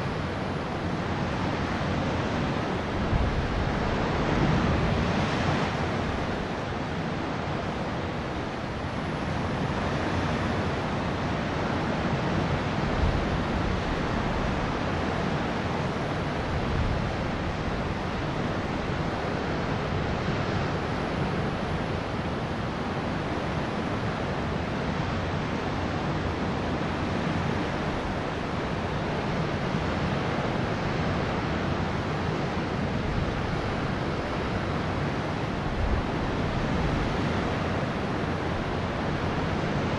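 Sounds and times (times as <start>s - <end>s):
open sea rushing: 0.0s - 39.9s
wind buffeting microphone: 2.8s - 6.7s.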